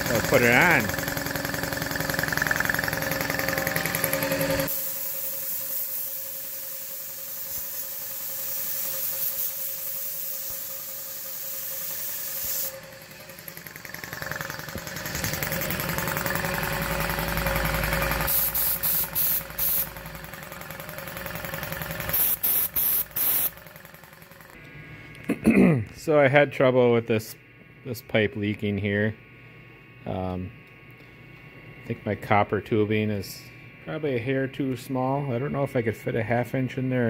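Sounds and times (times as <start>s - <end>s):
air compressor running: 0.0s - 37.0s
compressed air blow gun hissing: 3.8s - 12.7s, 18.2s - 19.9s, 22.0s - 23.6s.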